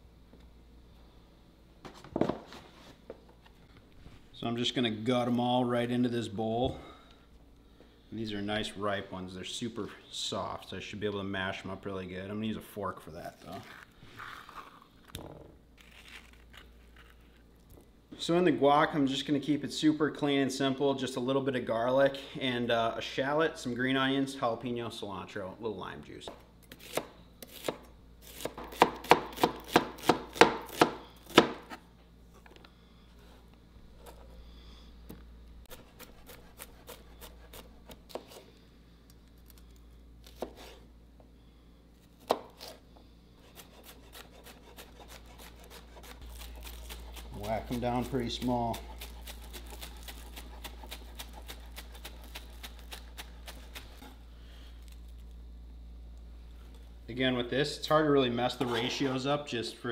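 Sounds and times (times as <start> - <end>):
knife chopping on cutting board: 26.8 - 31.8, 43.5 - 54.1.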